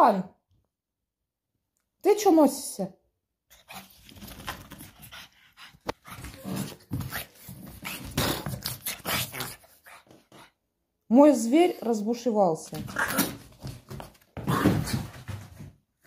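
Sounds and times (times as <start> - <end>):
dog making excited play noises: 3.5 - 10.6.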